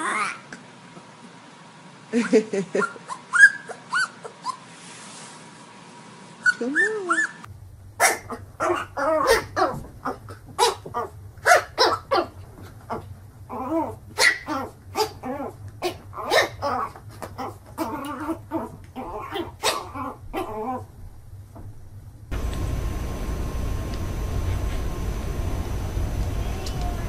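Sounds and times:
puppy whining: 0:02.7 - 0:04.8, 0:06.4 - 0:20.9
puppy yapping: 0:02.8 - 0:04.6, 0:06.4 - 0:20.8.

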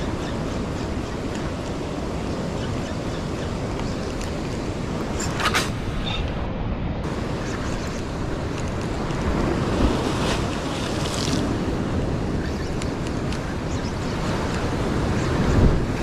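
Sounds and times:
wind buffeting microphone: 0:00.0 - 0:16.0
waves washing over rock: 0:07.1 - 0:16.0.

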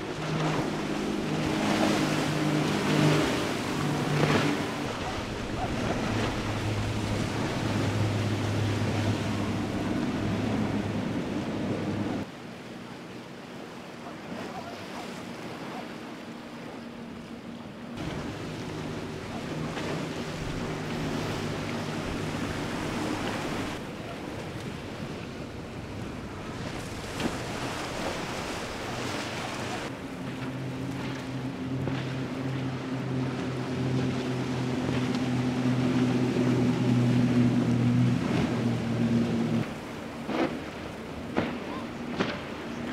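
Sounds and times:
hull spray and waves: 0:00.0 - 0:42.9
outboard engine drone: 0:00.0 - 0:42.9.

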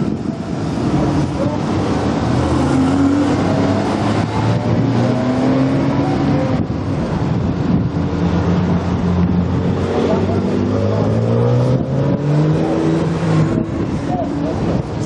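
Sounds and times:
sports cars accelerating past: 0:00.9 - 0:06.7.

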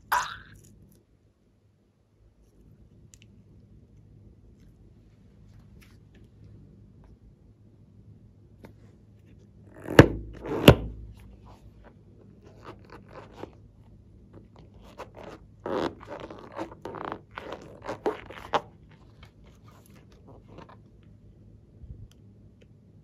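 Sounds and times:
fingers rubbing balloon: 0:09.8 - 0:11.0, 0:14.7 - 0:18.8.

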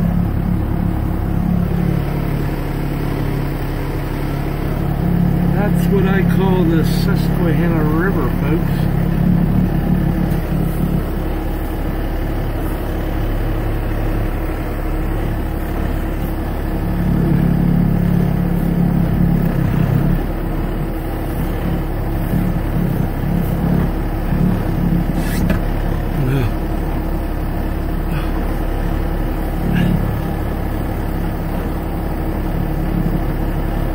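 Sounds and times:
truck engine humming: 0:00.0 - 0:33.9
windshield wiper scraping glass: 0:25.0 - 0:25.7.

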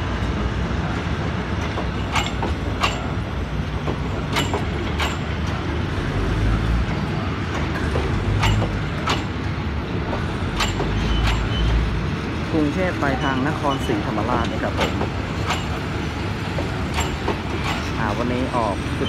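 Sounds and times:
train coaches rumbling past: 0:00.0 - 0:19.0
wheels clicking over rail joints: 0:01.5 - 0:06.2, 0:06.8 - 0:11.8, 0:13.8 - 0:19.0.

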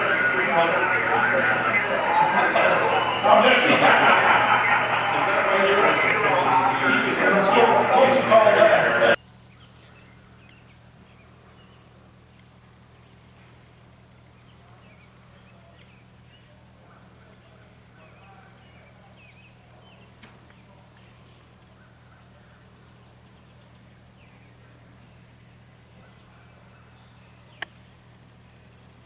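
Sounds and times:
steady low hum: 0:00.0 - 0:29.0
bird chirps: 0:09.2 - 0:11.9.

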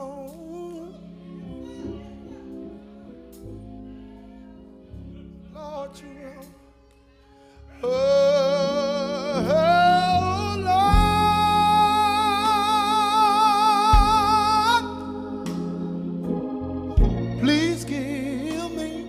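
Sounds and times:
man singing gospel with vibrato: 0:00.0 - 0:02.1, 0:05.1 - 0:06.8, 0:07.7 - 0:16.1, 0:17.1 - 0:19.0
organ chords: 0:00.0 - 0:19.0.

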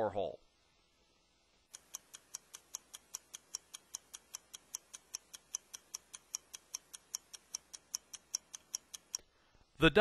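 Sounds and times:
stopwatch ticking: 0:01.7 - 0:09.3.

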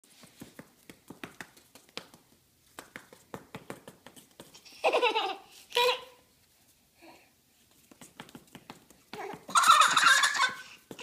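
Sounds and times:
tapping on foam mats: 0:00.2 - 0:04.6, 0:07.9 - 0:11.0
toddler squealing: 0:09.3 - 0:10.7.

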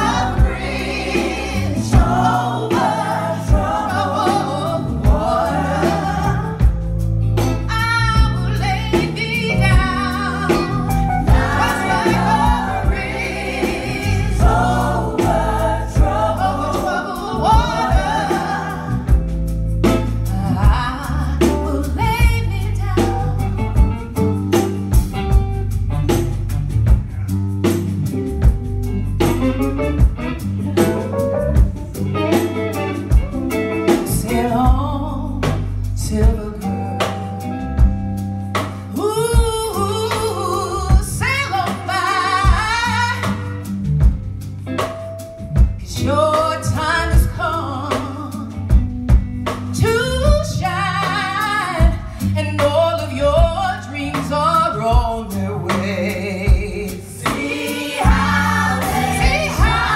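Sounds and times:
woman singing lead: 0:00.0 - 0:06.9, 0:07.6 - 0:19.4, 0:20.0 - 0:24.1, 0:32.3 - 0:37.4, 0:38.9 - 0:43.6, 0:45.8 - 0:48.9, 0:49.6 - 0:59.9
gospel choir singing: 0:00.0 - 0:07.1, 0:09.8 - 0:22.0, 0:41.4 - 0:43.6, 0:57.0 - 0:59.9
bass and drums: 0:00.0 - 0:59.9.

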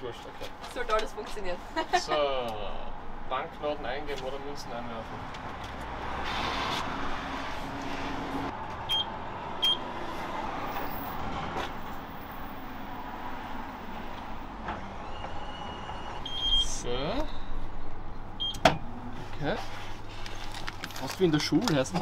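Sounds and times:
street traffic noise: 0:00.0 - 0:22.0
short electronic beeps: 0:08.9 - 0:09.8, 0:16.2 - 0:16.8.

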